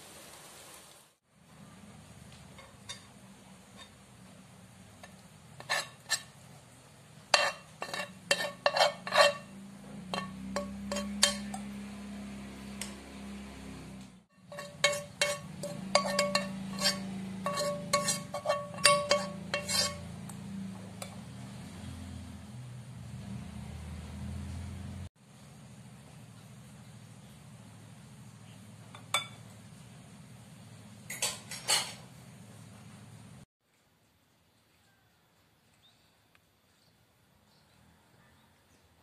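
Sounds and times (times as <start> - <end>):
metal utensils clinking on dishes: 2.5 - 4.0, 7.3 - 11.8, 14.4 - 20.2, 28.9 - 29.5, 31.1 - 32.0.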